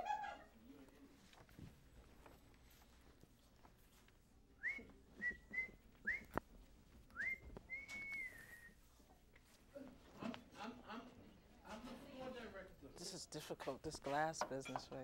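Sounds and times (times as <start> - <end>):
person whistling: 4.6 - 6.4, 7.1 - 8.8.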